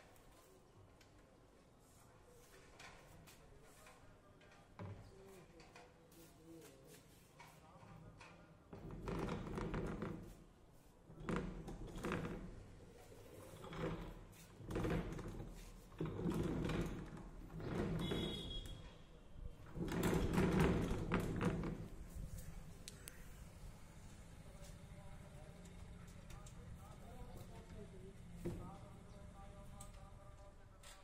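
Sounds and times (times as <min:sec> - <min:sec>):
wooden cabinet scraping on floor: 0:13.4 - 0:18.4, 0:19.7 - 0:22.5.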